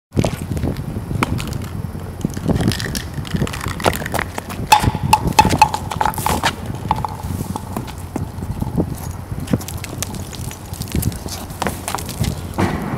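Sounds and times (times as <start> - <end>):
running footsteps on concrete: 2.9 - 12.6.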